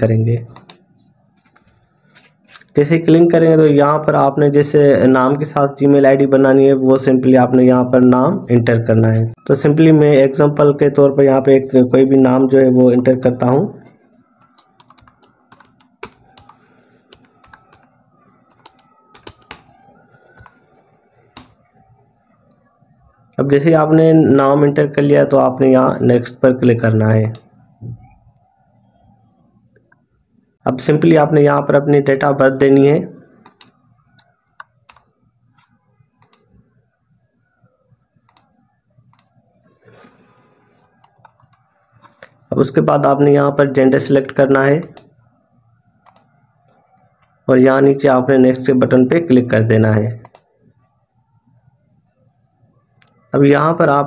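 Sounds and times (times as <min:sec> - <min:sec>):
faint irregular clicks: 0:00.5 - 0:02.7, 0:33.4 - 0:36.6, 0:38.2 - 0:39.8, 0:46.0 - 0:47.4, 0:50.2 - 0:51.0.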